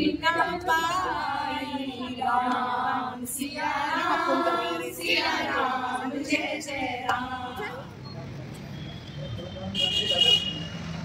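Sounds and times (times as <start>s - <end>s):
women singing unaccompanied: 0.0s - 8.0s.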